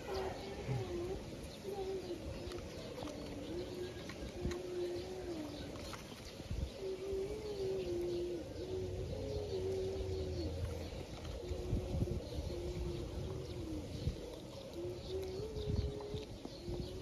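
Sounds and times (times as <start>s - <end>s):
dove cooing: 0.0s - 17.0s.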